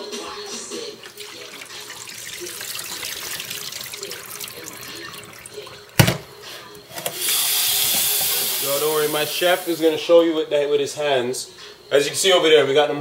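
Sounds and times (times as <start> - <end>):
faucet running into steel sink: 0.9 - 10.0.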